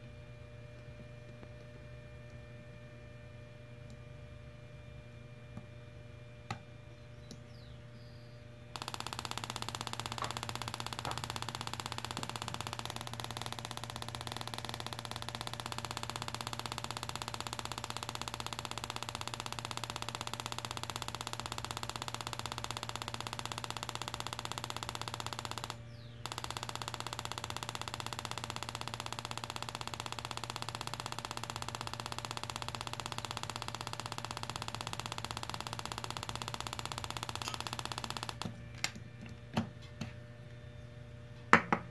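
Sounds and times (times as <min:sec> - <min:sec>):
electronic tester beeper buzzing: 0:08.8 - 0:38.5.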